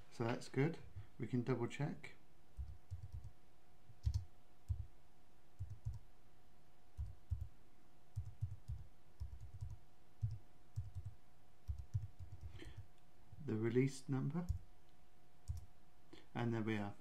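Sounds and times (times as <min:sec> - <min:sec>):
faint steady hum: 0:00.0 - 0:17.0
computer keyboard typing: 0:02.6 - 0:03.4, 0:04.0 - 0:04.9, 0:05.6 - 0:06.0, 0:07.0 - 0:07.5, 0:08.2 - 0:12.9, 0:15.5 - 0:15.7.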